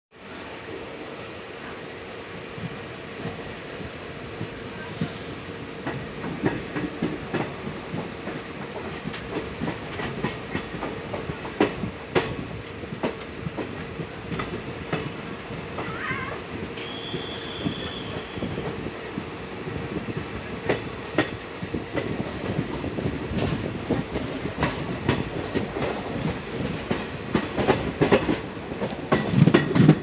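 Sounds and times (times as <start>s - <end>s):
train rolling rumble: 0.1s - 30.0s
wheel squeal: 16.8s - 18.8s
wheels clicking over rail joints: 20.1s - 30.0s.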